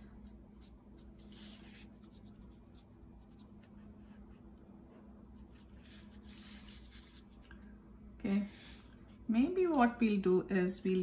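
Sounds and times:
paintbrush stroking paper: 0:00.2 - 0:07.5, 0:08.4 - 0:09.2.

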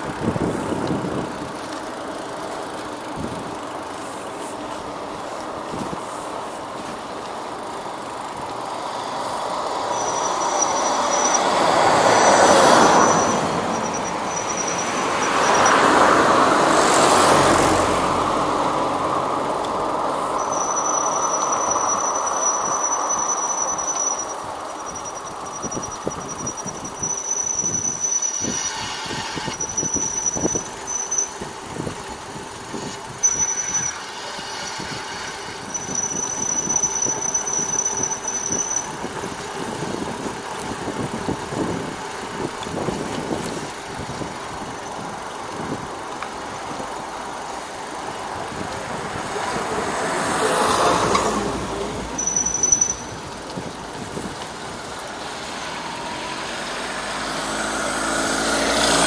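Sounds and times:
motor vehicle passing: 0:00.0 - 0:25.5, 0:46.8 - 0:59.0
road and wind noise: 0:00.0 - 0:59.0
high-pitched squeal: 0:07.8 - 0:31.9, 0:32.7 - 0:40.0, 0:48.6 - 0:59.0.

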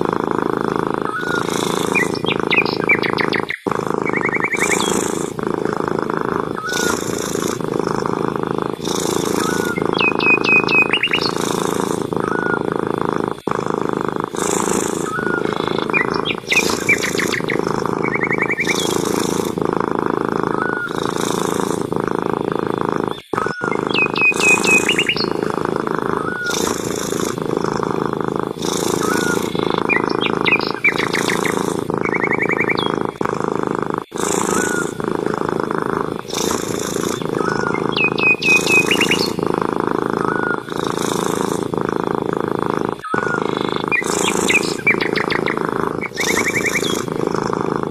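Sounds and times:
birds chirping: 0:00.0 - 0:47.9
cat purring: 0:00.0 - 0:47.9.

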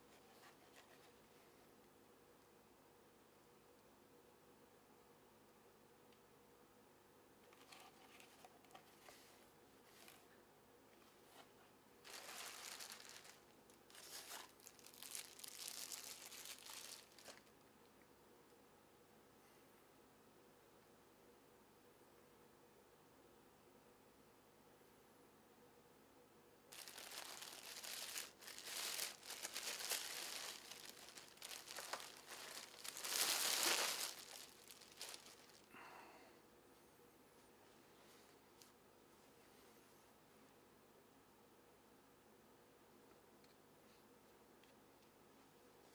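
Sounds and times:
plastic packaging crinkling: 0:12.0 - 0:17.5, 0:26.7 - 0:35.7.

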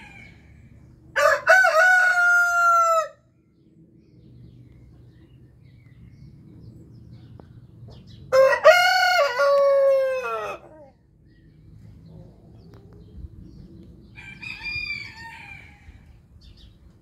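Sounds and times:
rooster crowing: 0:01.2 - 0:03.2, 0:08.3 - 0:10.9, 0:14.2 - 0:16.1.

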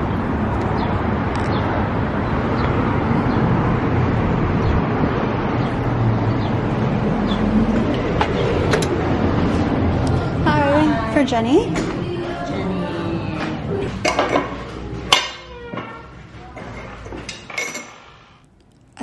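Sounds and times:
rumble of passing cars: 0:00.0 - 0:18.2.

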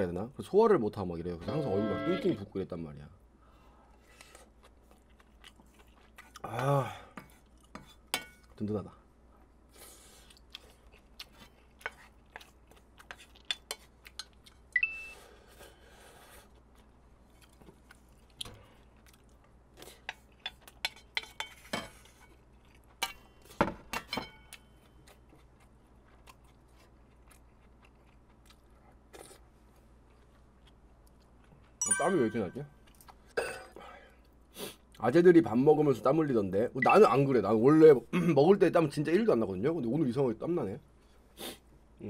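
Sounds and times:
chewing: 0:04.2 - 0:06.5, 0:10.1 - 0:14.7, 0:16.4 - 0:21.2, 0:22.3 - 0:23.5, 0:24.5 - 0:31.8.

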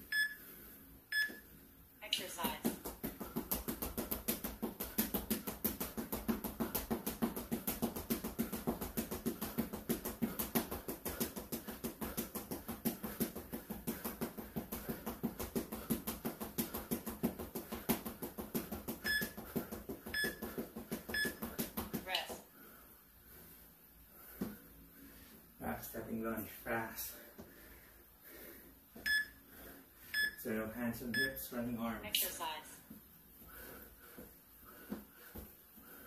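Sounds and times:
interval timer beep: 0:00.0 - 0:00.4, 0:01.1 - 0:01.4, 0:19.0 - 0:19.4, 0:20.1 - 0:21.4, 0:29.0 - 0:29.4, 0:30.2 - 0:30.4, 0:31.1 - 0:31.5.

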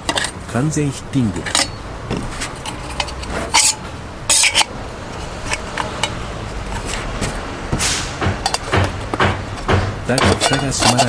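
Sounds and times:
metal clattering: 0:00.0 - 0:11.0
metal cup and stand clinking: 0:01.2 - 0:01.8, 0:02.5 - 0:07.0, 0:08.4 - 0:11.0.

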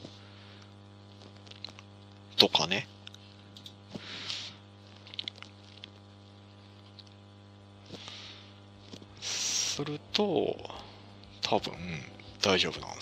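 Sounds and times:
low electrical hum: 0:00.0 - 0:13.0
soft breathy hiss: 0:09.2 - 0:09.9.

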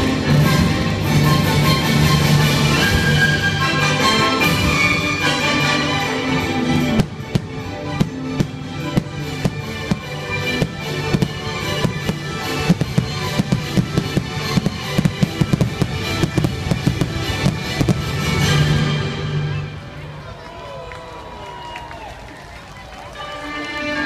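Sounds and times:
show music: 0:00.0 - 0:20.4
firework bangs and crackles: 0:06.6 - 0:20.4.

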